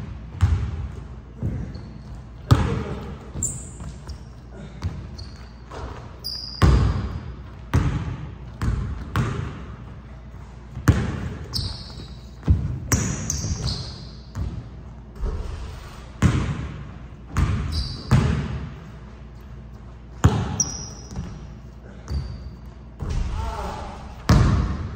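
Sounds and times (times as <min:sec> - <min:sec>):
sneaker squeaks: 0:01.3 - 0:07.8, 0:08.6 - 0:15.6, 0:17.4 - 0:23.3.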